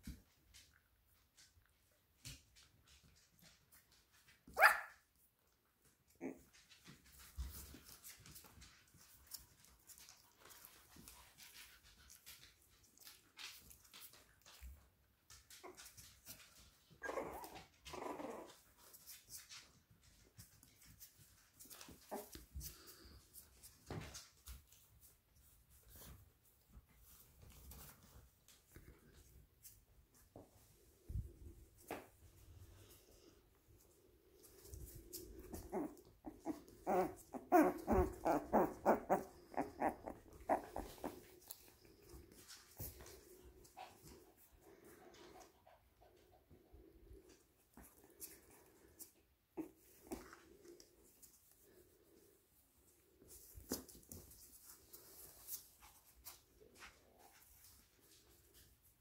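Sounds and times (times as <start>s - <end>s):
puppy yapping: 4.5s - 5.0s.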